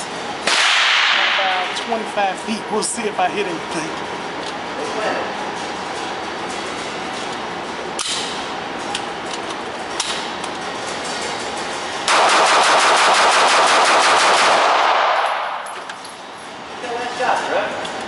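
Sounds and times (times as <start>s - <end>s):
rapid pistol shots echoing: 0.4s - 1.5s, 12.1s - 15.6s.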